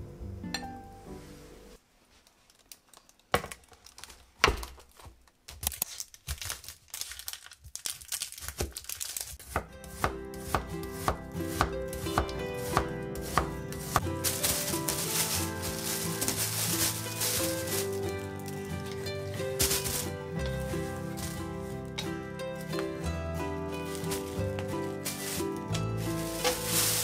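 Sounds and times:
soft background music: 0.0s - 1.8s, 9.4s - 27.0s.

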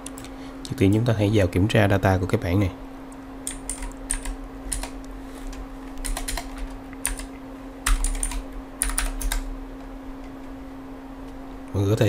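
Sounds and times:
computer keyboard keys clicking: 0.0s - 0.3s, 3.4s - 5.0s, 6.0s - 9.5s
faint steady hum: 0.0s - 12.0s.

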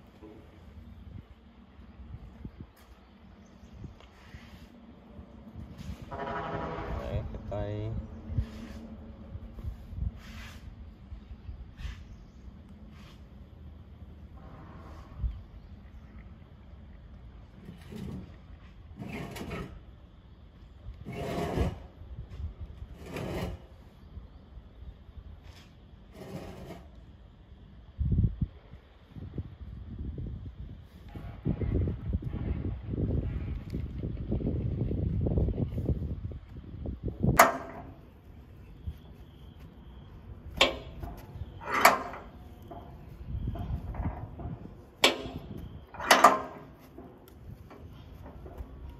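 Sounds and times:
rasping scrapes on wood: 21.1s - 21.8s.

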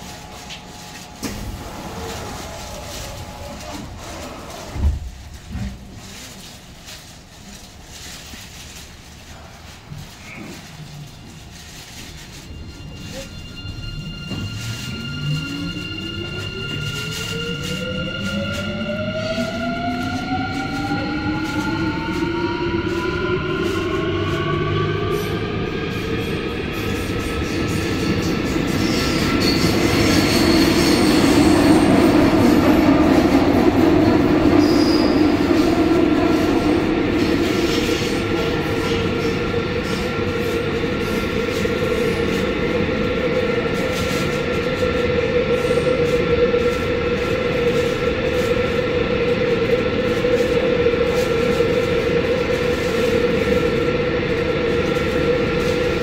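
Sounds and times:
wheels rumbling on rail: 0.0s - 56.0s
high wheel squeals: 12.2s - 18.7s.

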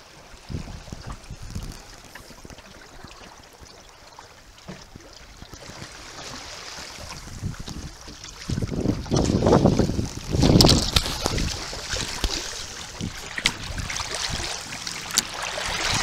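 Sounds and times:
water rushing along hull: 0.0s - 16.0s
wind gusts on microphone: 0.3s - 3.1s, 6.4s - 14.9s.

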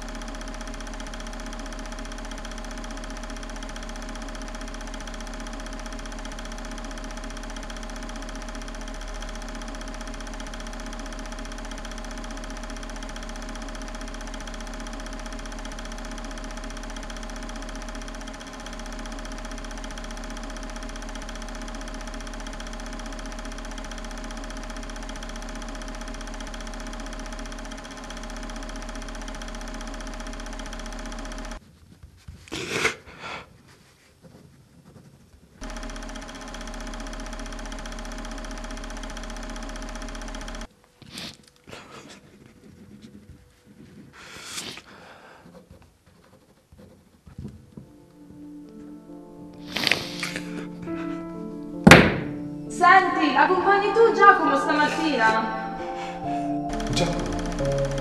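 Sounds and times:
film projector whirring and clattering: 0.0s - 31.6s, 35.6s - 40.7s, 56.2s - 58.0s.

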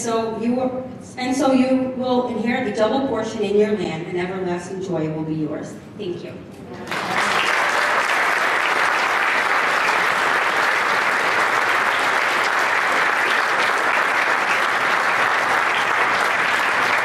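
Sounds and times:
congregation applauding: 6.8s - 17.0s.

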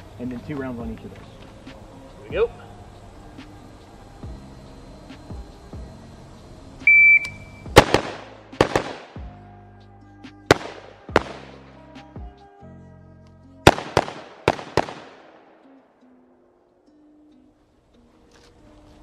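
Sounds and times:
background music: 0.0s - 19.0s
shot timer beep: 6.8s - 7.7s
rifle shots: 7.7s - 9.3s, 10.5s - 11.6s, 13.7s - 15.5s.

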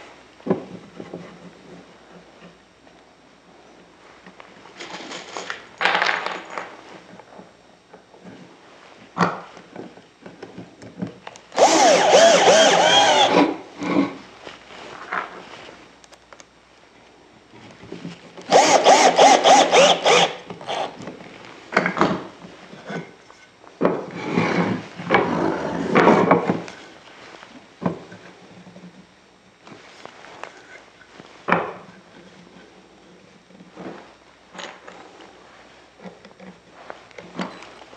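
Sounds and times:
cordless drill driving screws: 11.6s - 13.5s, 18.5s - 20.9s.

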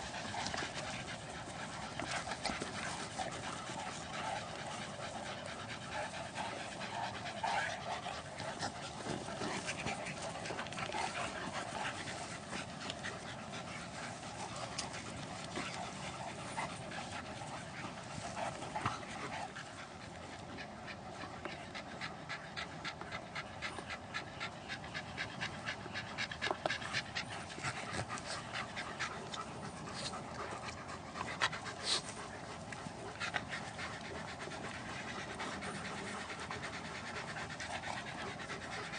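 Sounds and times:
dogs panting: 0.0s - 38.9s
dogs play-fighting: 0.0s - 38.9s.

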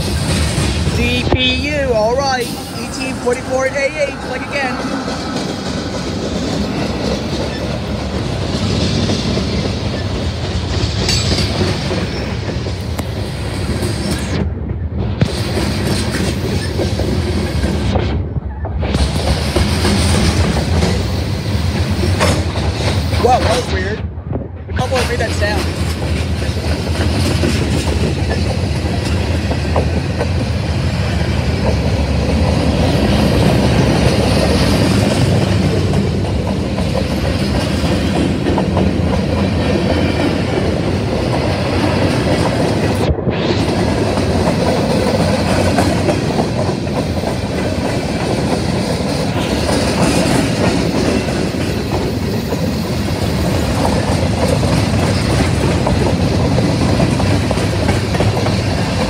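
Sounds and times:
freight train rolling past: 0.0s - 59.0s
wheels clicking over rail joints: 44.2s - 59.0s.

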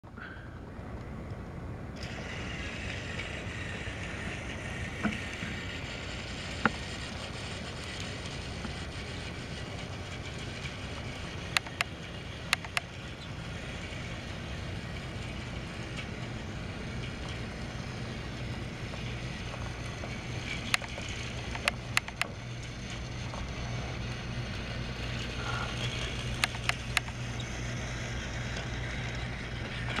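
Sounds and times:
toy train motor whirring: 2.0s - 30.0s
sharp clicks: 11.5s - 11.9s, 12.5s - 12.9s, 20.6s - 22.3s, 26.2s - 27.2s.

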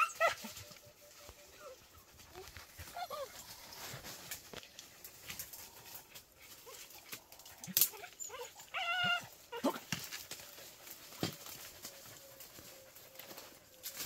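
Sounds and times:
dog whining and yelping: 0.0s - 0.9s, 1.6s - 3.6s, 7.6s - 9.8s
twigs snapping and rustling: 2.4s - 14.0s.

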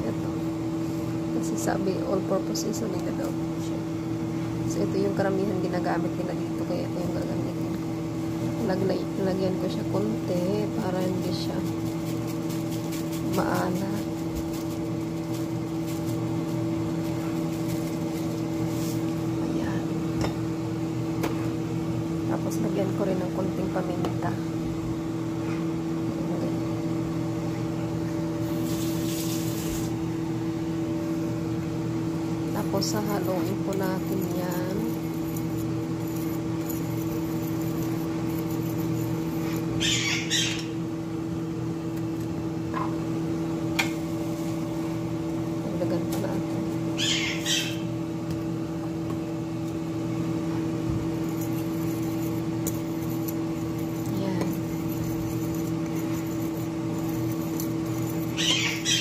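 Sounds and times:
kitchen appliance humming: 0.0s - 59.0s
fork scraping flour in bowl: 10.6s - 19.2s, 32.6s - 39.8s, 51.1s - 59.0s.

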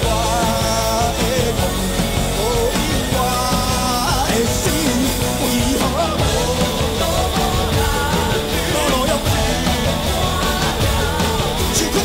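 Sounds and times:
electric guitar: 0.0s - 12.0s
live rock band: 0.0s - 12.0s
man singing: 0.0s - 12.0s.

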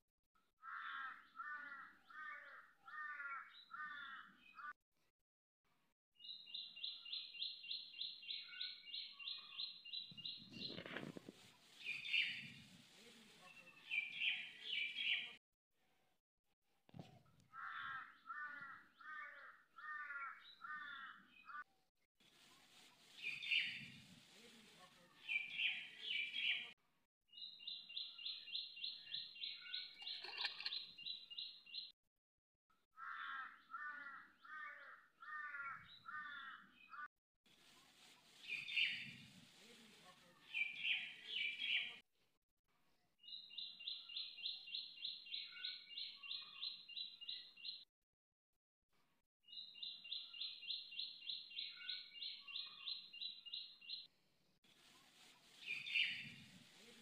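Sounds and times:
rapid high bird chirps: 23.0s - 24.1s, 38.4s - 39.4s, 55.5s - 56.8s.

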